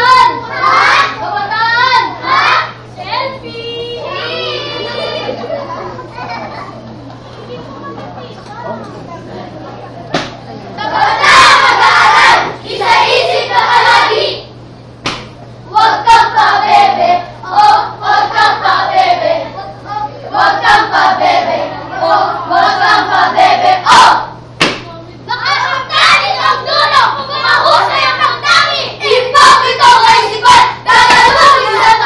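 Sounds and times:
sharp claps: 15.0 - 15.4, 24.6 - 24.9.

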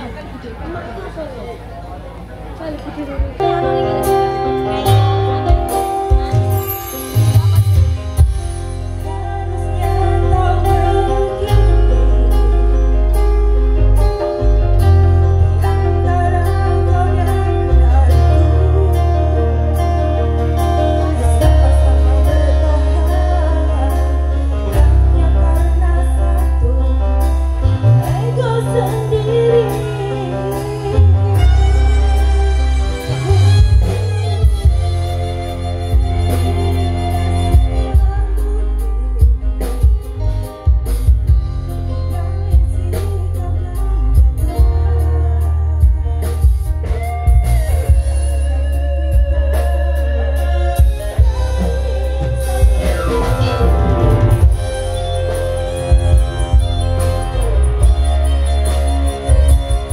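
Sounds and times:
live band music: 0.0 - 59.9
heavy bass line: 3.3 - 59.9
woman singing: 8.9 - 12.8, 14.8 - 32.7, 36.1 - 40.0, 41.6 - 59.9.

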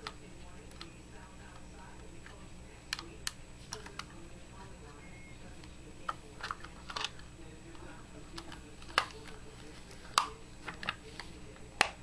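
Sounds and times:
steady low hum: 0.0 - 12.0
plastic housing clicks and scrapes: 6.0 - 7.2.

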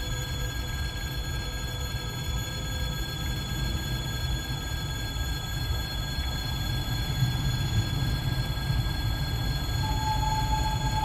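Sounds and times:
faint high-pitched tones: 9.6 - 11.0.

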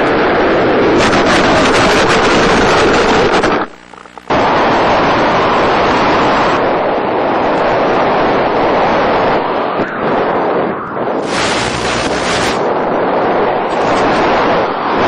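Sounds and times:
wind noise roaring: 0.0 - 15.0
motor and propeller whine: 11.2 - 12.7.

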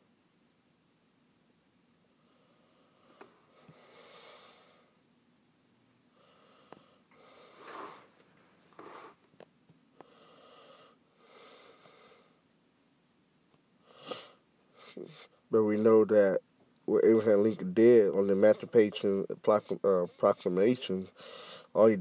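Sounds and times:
faint breathing: 2.2 - 5.0, 6.1 - 9.2, 10.0 - 12.5, 13.8 - 15.5, 21.1 - 21.8.

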